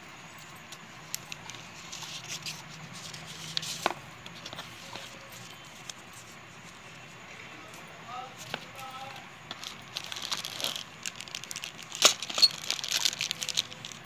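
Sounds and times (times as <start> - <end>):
packaging rustling: 8.4 - 14.0.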